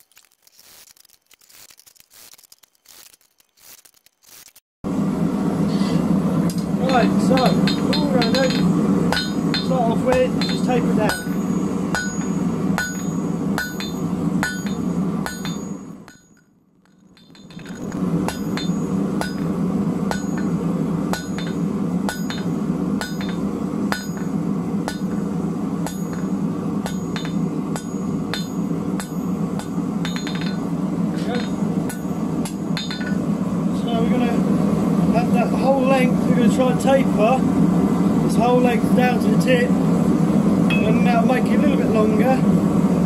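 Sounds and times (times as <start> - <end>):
hammer ringing on anvil: 6.8 - 16.4, 17.1 - 19.5, 20.1 - 25.2, 25.8 - 30.6, 31.2 - 33.2, 40.7 - 41.0.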